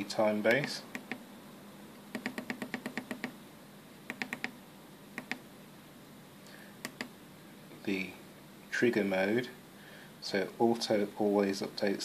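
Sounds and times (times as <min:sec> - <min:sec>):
push buttons clicking: 0:02.1 - 0:03.4, 0:04.1 - 0:04.6, 0:05.2 - 0:05.4, 0:06.8 - 0:07.1.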